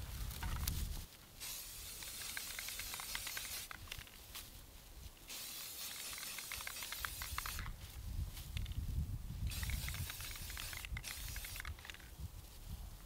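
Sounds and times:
dry grass crackling: 0.0s - 13.0s
spray paint can hissing: 1.4s - 4.0s, 5.3s - 7.7s, 9.5s - 12.0s.

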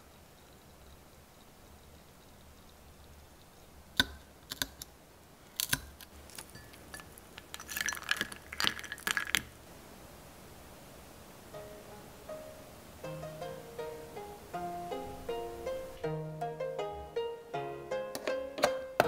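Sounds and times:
needle cracking toffee on plate: 4.0s - 4.9s, 5.5s - 9.6s.

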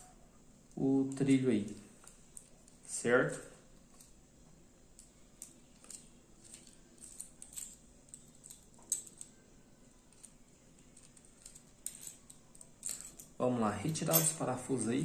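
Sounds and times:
small metal parts clicking and rattling: 0.7s - 2.9s, 3.7s - 4.2s, 5.0s - 9.4s, 10.0s - 14.6s.

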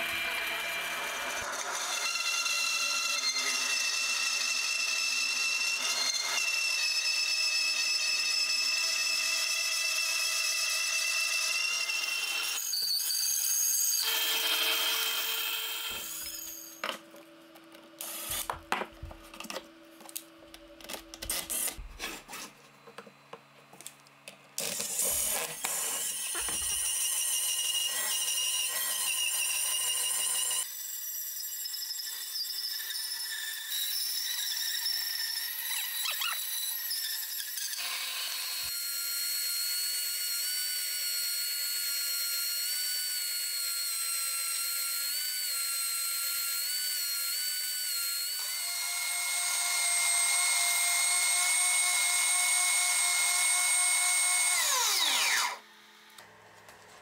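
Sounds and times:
bandsaw cutting wood: 18.0s - 18.8s, 21.0s - 22.6s, 24.6s - 31.4s, 32.8s - 56.5s.

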